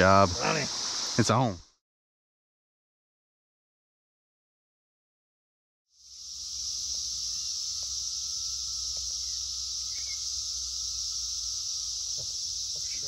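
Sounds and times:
cicadas droning: 0:00.0 - 0:01.8, 0:05.9 - 0:13.0
low buzz: 0:06.2 - 0:13.0.

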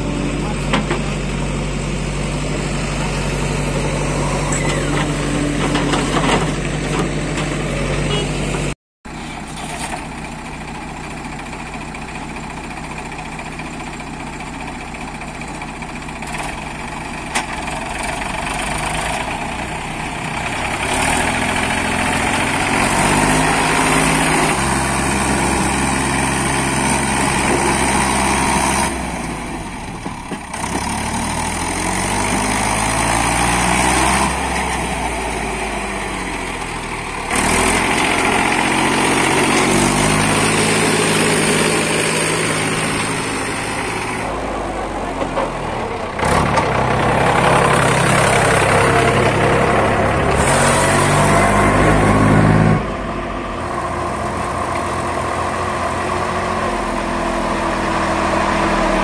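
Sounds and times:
heavy diesel engines revving: 0:00.0 - 0:59.0.

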